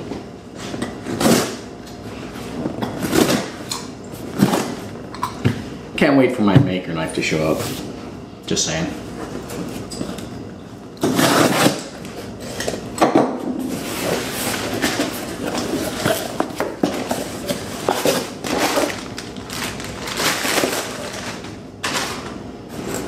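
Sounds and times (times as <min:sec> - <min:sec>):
knife slitting packing tape: 0:11.0 - 0:11.9
packing material rustling: 0:17.0 - 0:22.2.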